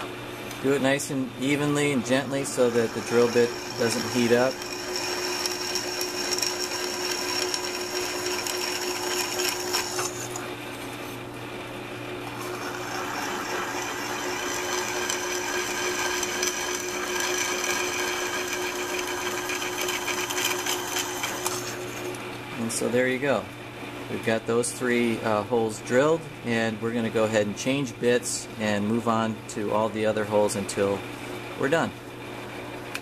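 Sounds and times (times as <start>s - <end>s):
drill press motor running: 0.8s - 10.8s, 11.8s - 22.8s
drill bit cutting aluminum: 2.0s - 10.4s, 12.4s - 22.0s.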